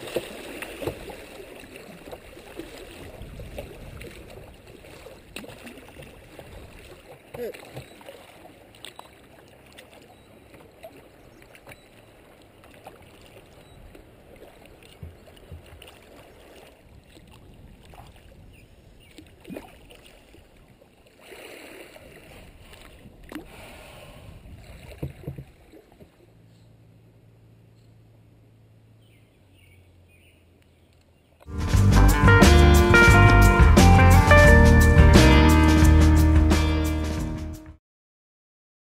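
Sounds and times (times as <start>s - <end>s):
paddle strokes splashing: 0.0s - 27.0s
water lapping at plastic hull: 0.0s - 27.4s.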